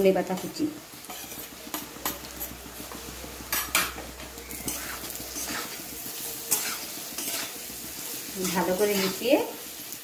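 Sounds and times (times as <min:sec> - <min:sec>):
light frying sizzle: 0:00.0 - 0:10.0
metal spatula scraping a pan: 0:01.0 - 0:02.6, 0:03.5 - 0:09.5.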